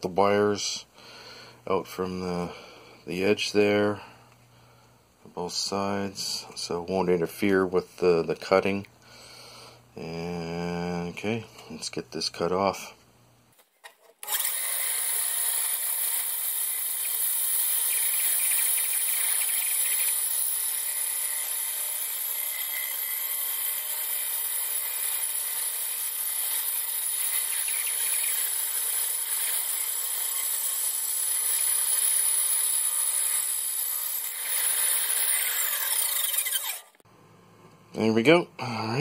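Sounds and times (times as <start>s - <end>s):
power saw cutting plastic: 13.6s - 37.0s.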